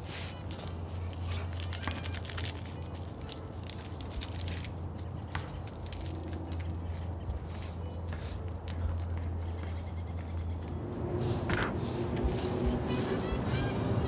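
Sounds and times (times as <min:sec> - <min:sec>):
small clicks and crackles: 0:00.5 - 0:07.1
steady low hum: 0:06.3 - 0:14.0.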